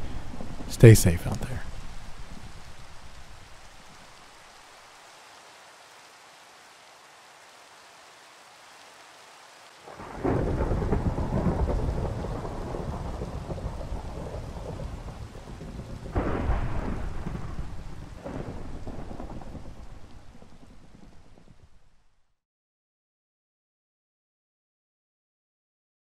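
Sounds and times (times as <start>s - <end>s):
thunder cracking and rumbling: 0.0s - 3.6s, 9.9s - 21.8s
steady rain: 0.0s - 22.4s.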